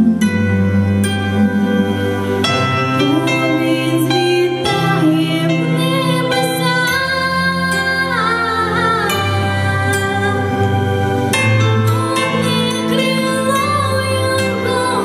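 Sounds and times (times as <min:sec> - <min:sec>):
instrumental accompaniment: 0:00.0 - 0:15.0
girl singing a slow song: 0:03.0 - 0:10.9, 0:11.7 - 0:15.0.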